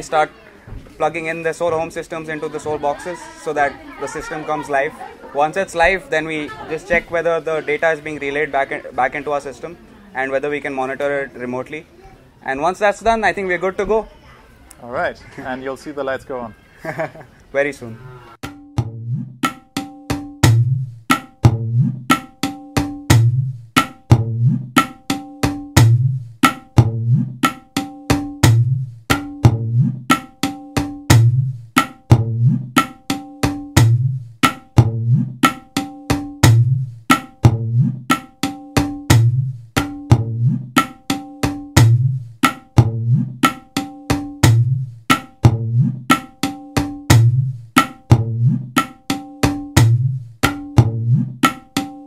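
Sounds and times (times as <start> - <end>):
background music with percussive beat: 18.4 - 52.0
deep drum beats: 18.4 - 52.0.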